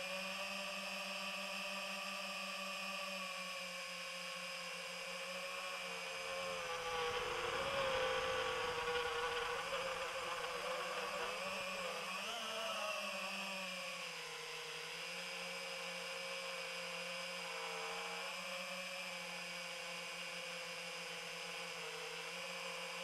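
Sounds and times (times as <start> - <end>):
drone propellers buzzing: 4.7 - 13.1.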